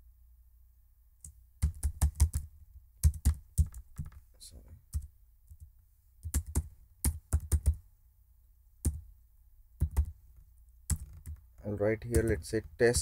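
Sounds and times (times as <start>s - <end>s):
keyboard typing: 1.2s - 4.2s, 4.9s - 7.8s, 9.8s - 10.2s, 10.9s - 13.0s.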